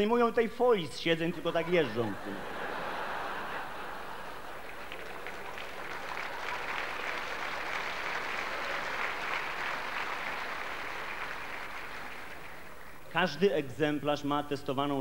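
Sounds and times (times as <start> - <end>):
large audience applauding: 2.7 - 13.2.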